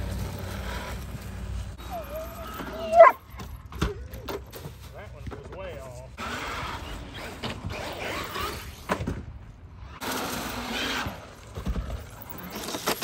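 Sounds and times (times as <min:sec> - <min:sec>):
rc truck electric motor whirring: 0:06.2 - 0:08.9, 0:09.8 - 0:13.0.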